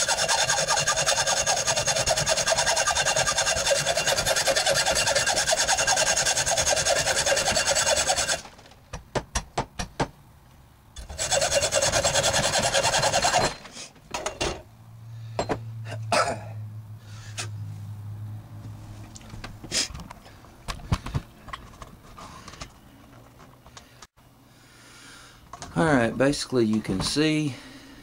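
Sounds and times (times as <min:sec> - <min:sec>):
hacksaw cutting metal: 0:00.0 - 0:08.5, 0:11.0 - 0:13.6.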